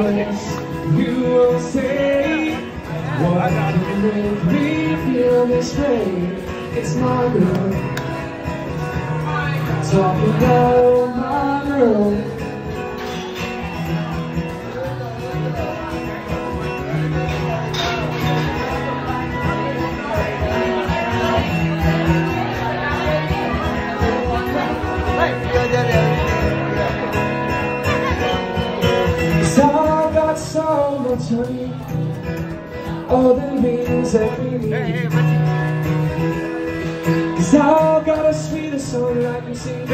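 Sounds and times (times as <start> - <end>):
person singing: 0.0 - 8.3, 9.0 - 12.8
strummed guitar: 0.0 - 39.9.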